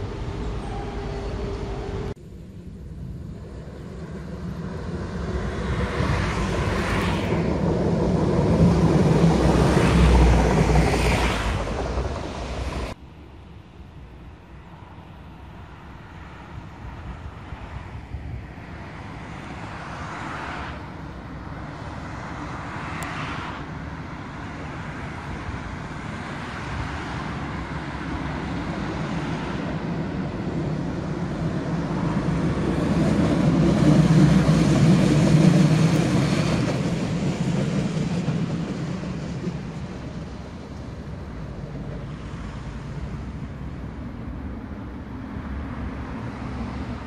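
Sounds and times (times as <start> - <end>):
trams rumbling past: 0.0 - 13.4, 14.0 - 47.0
road traffic: 0.0 - 47.0.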